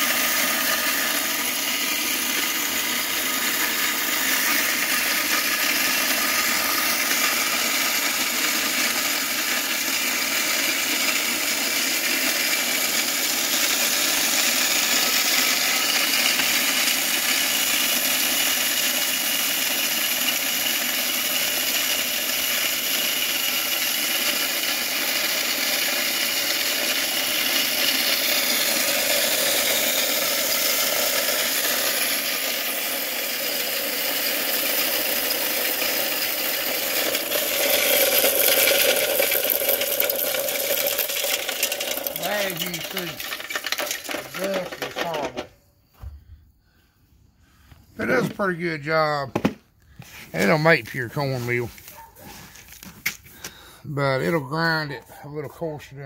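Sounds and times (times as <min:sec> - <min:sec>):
corn mill grinding: 0:00.0 - 0:45.5, 0:47.5 - 0:56.0
motor hum: 0:00.0 - 0:46.4.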